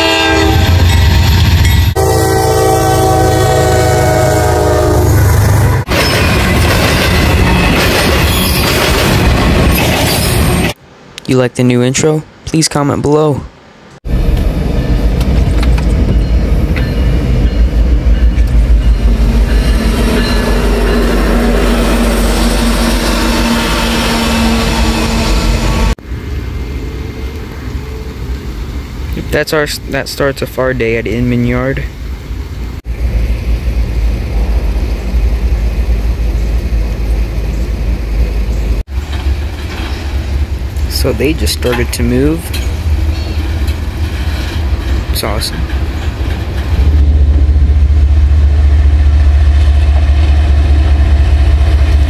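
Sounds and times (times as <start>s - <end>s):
train cars rolling: 0.0s - 11.0s, 14.1s - 52.0s
locomotive engine rumble: 14.1s - 52.0s.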